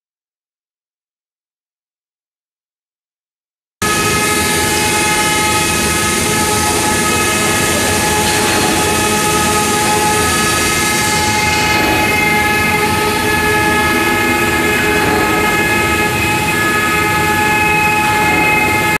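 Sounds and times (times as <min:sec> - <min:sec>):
router spindles whining: 0:03.8 - 0:19.0
wood cutting rush: 0:03.8 - 0:19.0.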